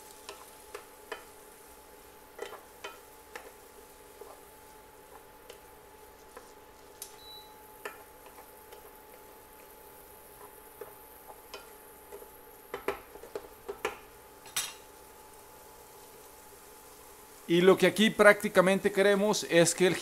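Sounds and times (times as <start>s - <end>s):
wooden spoon scraping frying pan: 0.0s - 7.0s.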